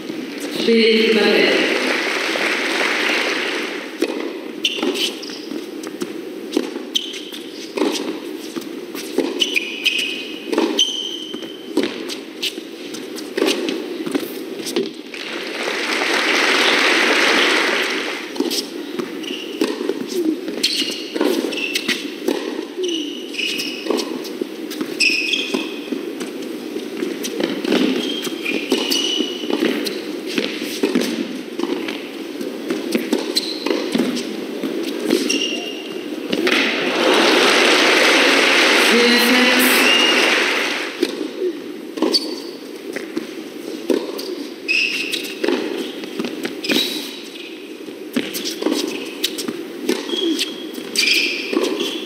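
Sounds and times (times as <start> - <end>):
rackets hitting tennis ball: 1.7 - 12.1, 27.0 - 41.4
tennis ball bouncing: 1.9 - 12.1, 16.0 - 22.6, 28.7 - 38.8, 42.0 - 44.3, 45.2 - 46.6
shoes squeaking on court: 2.8 - 15.4, 16.4 - 52.0
racket striking tennis ball: 32.7 - 38.8.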